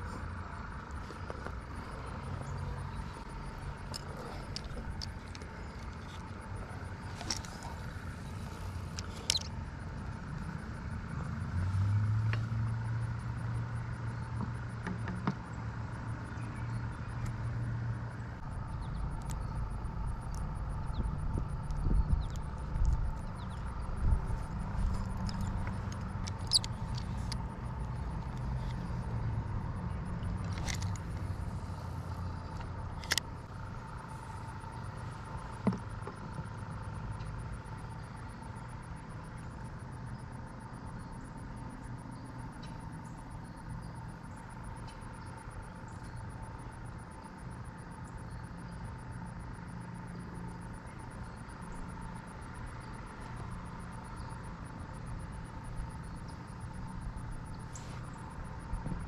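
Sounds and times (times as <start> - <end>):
distant road traffic rumble: 0.0 - 59.0
sharp clicks: 24.4 - 28.9.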